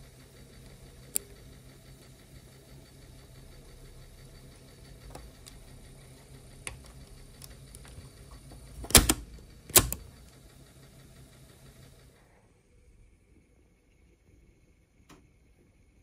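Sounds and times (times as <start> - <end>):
steady low hum: 0.0 - 16.0
cassette deck mechanical clicks: 5.0 - 5.7, 6.6 - 10.4.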